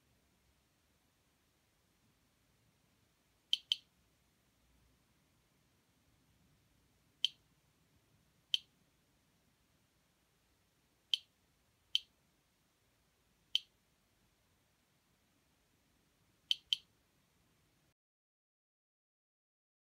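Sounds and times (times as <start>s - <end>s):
geiger counter clicks: 3.5s - 3.9s, 16.5s - 16.9s.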